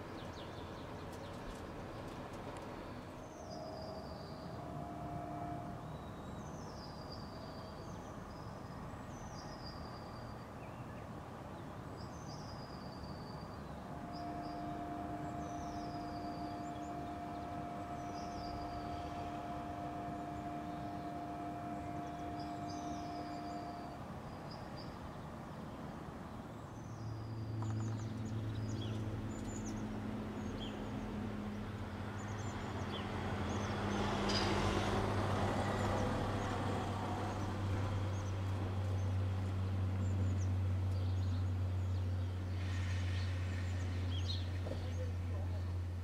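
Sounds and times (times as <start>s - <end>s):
low engine hum: 0.0s - 46.0s
small birds chirping: 3.0s - 25.2s.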